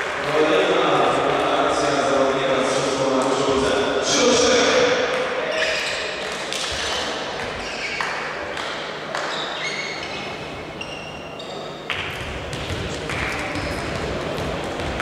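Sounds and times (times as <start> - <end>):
echoing crowd noise: 0.0 - 15.0
short high squeaks: 9.2 - 11.8.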